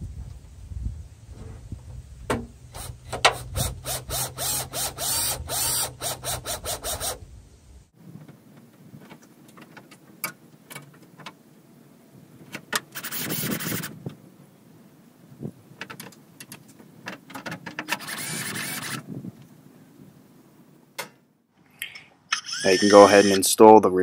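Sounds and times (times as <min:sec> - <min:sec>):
cordless drill driving a screw: 0:02.7 - 0:07.2, 0:18.0 - 0:19.0, 0:22.3 - 0:23.4.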